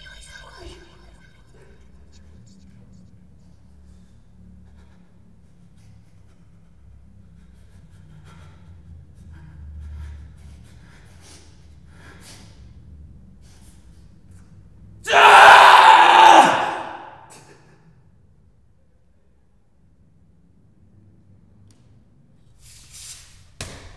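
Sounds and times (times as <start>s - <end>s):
sniffs: 3.8s - 12.8s.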